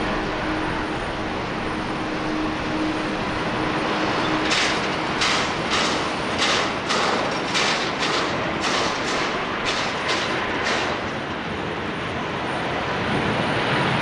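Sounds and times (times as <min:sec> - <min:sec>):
jet engines roaring: 0:00.0 - 0:14.0
regular clatter of short strokes: 0:04.4 - 0:11.2.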